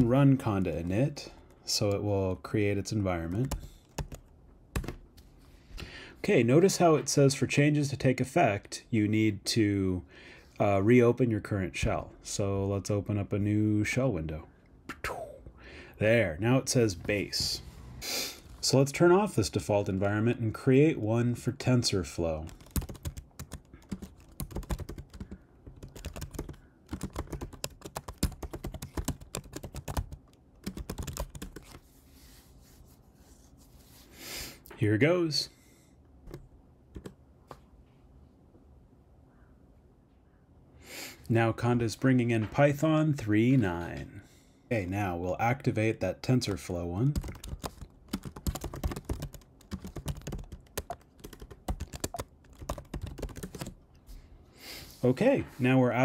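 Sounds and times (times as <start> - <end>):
keyboard typing clicks: 47.2 - 53.7.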